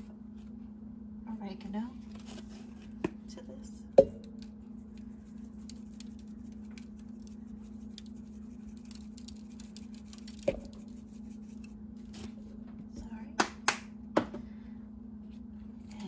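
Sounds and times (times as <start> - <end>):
steady low hum: 0.0 - 16.0
herb flakes pattering: 4.0 - 12.2.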